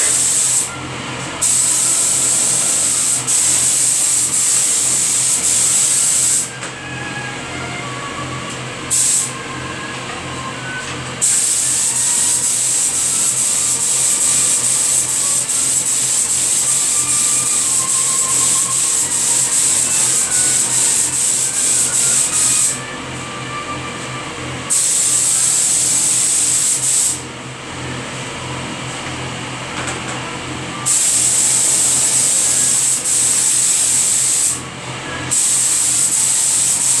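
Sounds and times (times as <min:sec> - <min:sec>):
spray gun hissing: 0:00.0 - 0:00.7, 0:01.4 - 0:06.5, 0:08.9 - 0:09.3, 0:11.2 - 0:22.8, 0:30.9 - 0:34.6, 0:35.3 - 0:37.0.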